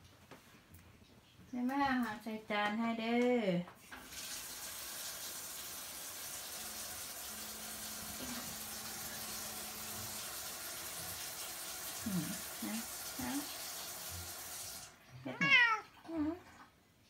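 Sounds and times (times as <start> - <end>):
tap running into sink: 3.9 - 14.9.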